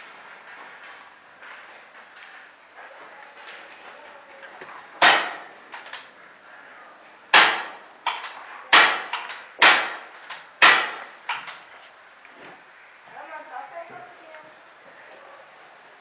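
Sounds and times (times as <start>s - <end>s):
paintball marker shots: 7.3s - 11.6s.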